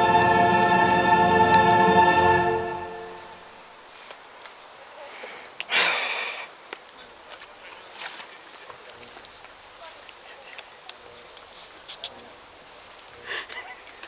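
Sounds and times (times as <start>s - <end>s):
faint clicks and rustles: 3.2s - 5.7s, 6.5s - 14.0s
loud breath close to microphone: 5.0s - 6.6s.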